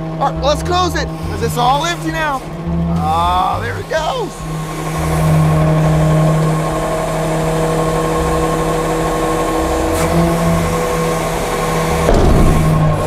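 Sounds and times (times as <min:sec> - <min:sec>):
garbage truck hydraulics whining: 0:00.0 - 0:13.0.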